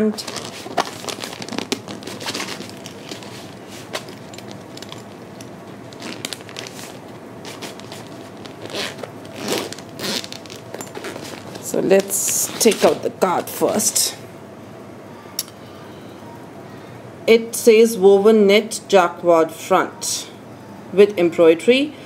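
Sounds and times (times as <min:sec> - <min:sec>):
plastic bag crinkling: 0:00.0 - 0:13.6.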